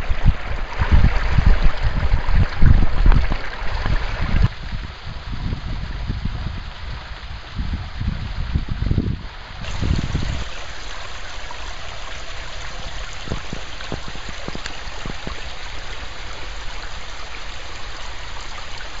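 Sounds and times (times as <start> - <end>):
creek water flowing over rocks: 9.6 - 19.0.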